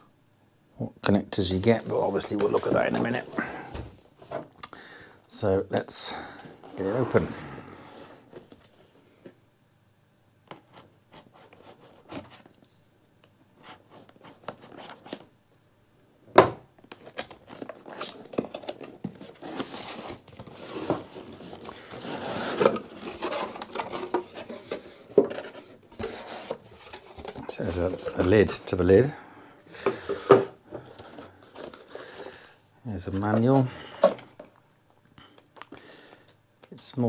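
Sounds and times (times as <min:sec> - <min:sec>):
cardboard scraping and rustling: 0:01.7 - 0:03.4, 0:06.6 - 0:07.5, 0:16.9 - 0:29.0.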